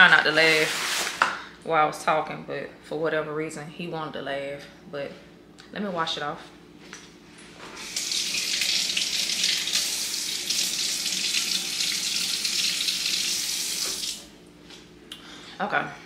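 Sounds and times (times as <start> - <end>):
tap water running into sink: 7.8 - 14.2.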